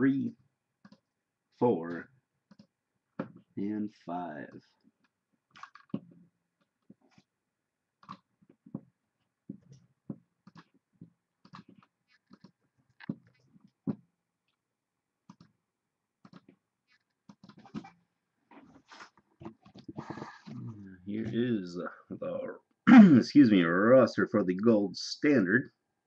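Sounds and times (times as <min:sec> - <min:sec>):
mouse and keyboard clicks: 0:00.8 - 0:01.0, 0:02.5 - 0:03.4, 0:05.6 - 0:06.1, 0:08.0 - 0:08.3, 0:10.4 - 0:10.8, 0:11.4 - 0:13.3, 0:15.3 - 0:15.5, 0:16.2 - 0:18.0.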